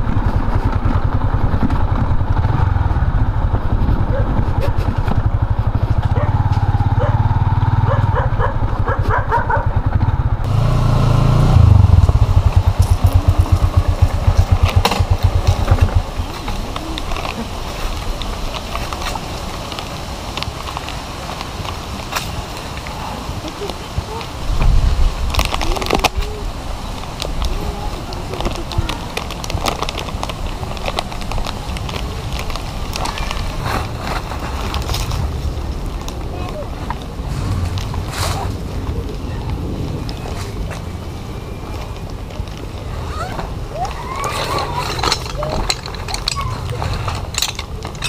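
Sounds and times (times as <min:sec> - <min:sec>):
steady low rumble: 0:00.0 - 0:09.0, 0:09.7 - 0:18.7, 0:28.9 - 0:42.9
motorcycle engine running: 0:00.0 - 0:17.0.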